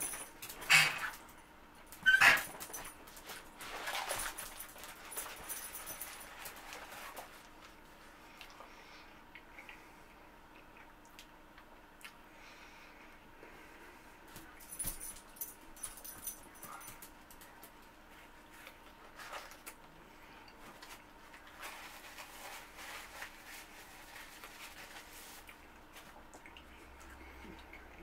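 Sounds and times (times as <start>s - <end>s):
faint steady hum: 0.0s - 28.0s
paper wrapper crinkling: 3.0s - 7.8s, 20.7s - 25.5s
chewing and mouth noises: 8.3s - 12.2s, 25.4s - 28.0s.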